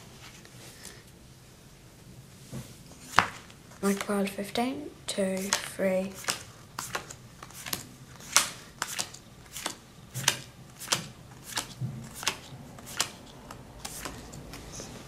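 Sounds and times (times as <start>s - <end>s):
playing cards snapping onto pile: 5.4s - 14.3s.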